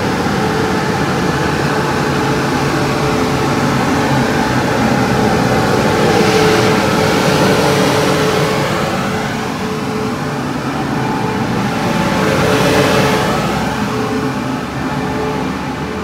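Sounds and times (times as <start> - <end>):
electric humming tone: 0.0 - 16.0
train rolling past: 0.0 - 16.0.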